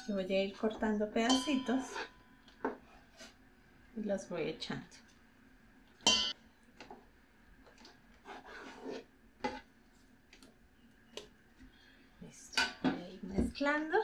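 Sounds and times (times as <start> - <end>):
metal clank on bowl: 1.3 - 1.9, 6.1 - 6.4.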